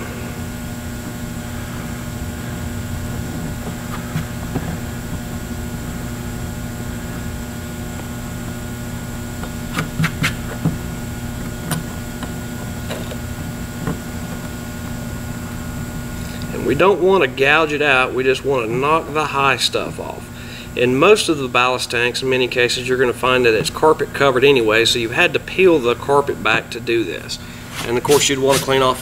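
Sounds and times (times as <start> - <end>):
steady background hum: 0.0 - 29.0
blade scraping plastic: 9.4 - 10.8, 27.6 - 29.0.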